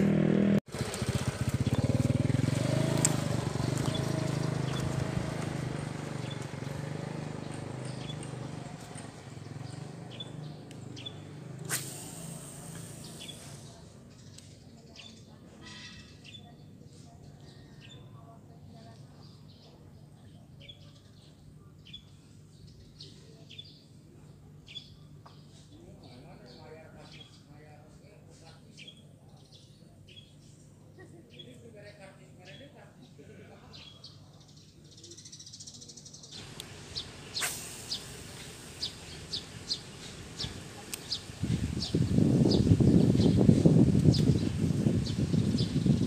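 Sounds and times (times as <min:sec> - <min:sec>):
small bird chirping: 0:06.2 - 0:18.2, 0:33.8 - 0:46.0.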